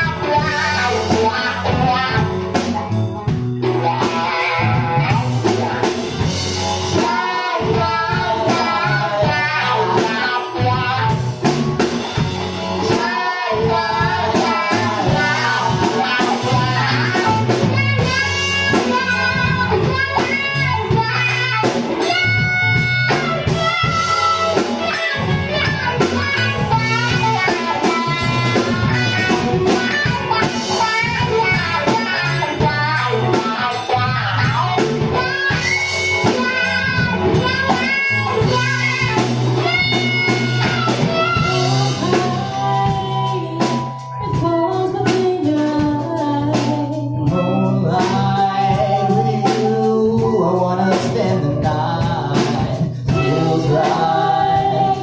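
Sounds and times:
electric guitar: 0.0 - 55.0
funk band playing: 0.0 - 55.0
woman singing: 6.9 - 11.1, 12.8 - 19.0, 41.2 - 55.0.

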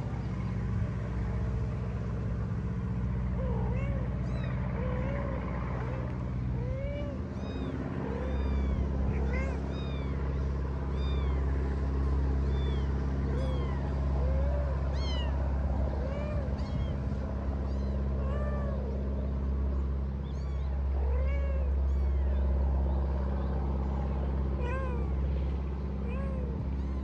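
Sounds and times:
low mechanical hum: 0.0 - 27.0
cats meowing: 3.3 - 11.7, 12.3 - 19.2, 20.1 - 25.4, 26.0 - 27.0.

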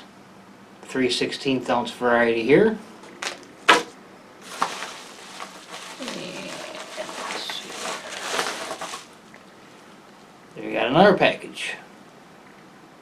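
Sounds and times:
plastic bag rustling: 3.0 - 9.6.

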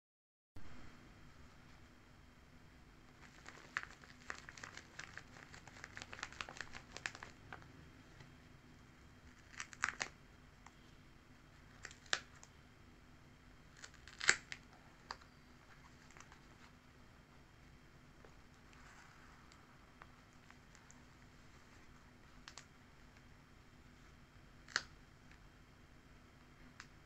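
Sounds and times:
paper crinkling: 3.1 - 7.6, 9.3 - 10.2, 13.7 - 16.8
paper flaps crackling open: 3.2 - 7.6, 9.3 - 10.2, 13.7 - 15.2.

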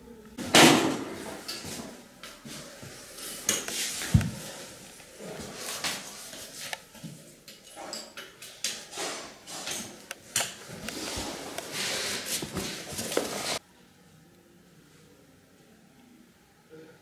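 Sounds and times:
scraping and rubbing on tile: 10.6 - 13.6.

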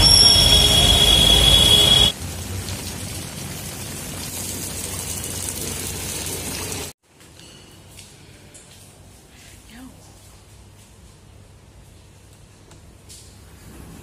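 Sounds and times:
high steady tone: 0.0 - 2.1
street noise: 0.0 - 6.8
heavy rain on pavement: 0.0 - 6.9.

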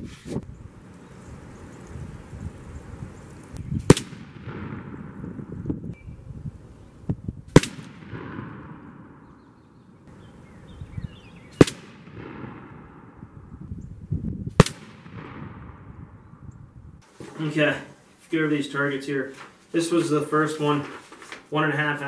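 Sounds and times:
gunshots with echo: 3.9 - 5.6, 7.5 - 9.5, 11.6 - 13.4, 14.6 - 16.2.

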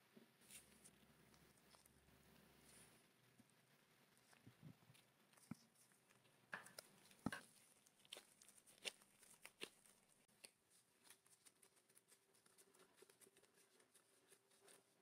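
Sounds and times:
hands kneading dough on board: 6.5 - 9.8.

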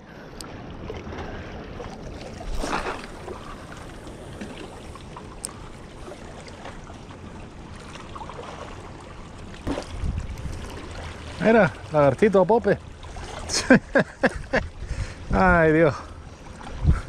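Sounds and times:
small waves washing against rocks: 0.9 - 14.1.

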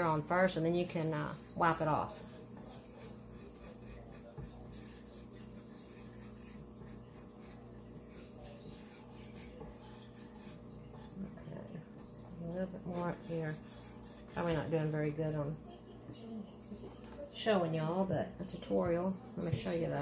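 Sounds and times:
wax brush scratching on wood: 0.0 - 15.4
low steady hum: 0.0 - 20.0.

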